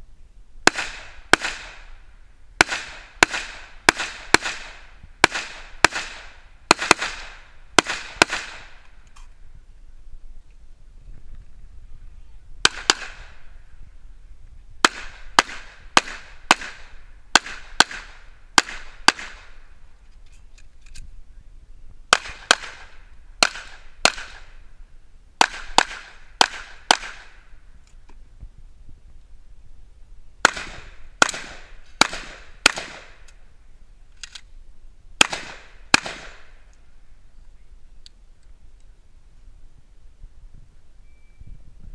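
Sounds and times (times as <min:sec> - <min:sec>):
handgun shots with echo: 0:35.2 - 0:36.5.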